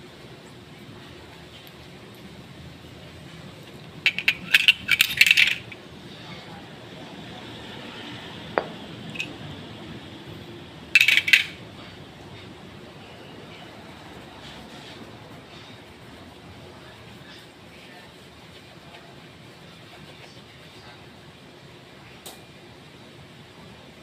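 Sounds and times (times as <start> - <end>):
small metal parts clinking: 4.1 - 5.8, 11.0 - 11.6.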